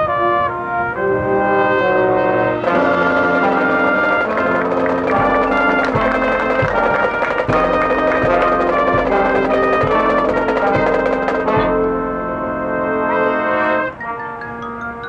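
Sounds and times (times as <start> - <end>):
marching band brass chords: 0.0 - 15.0
low drum strokes: 3.0 - 12.0.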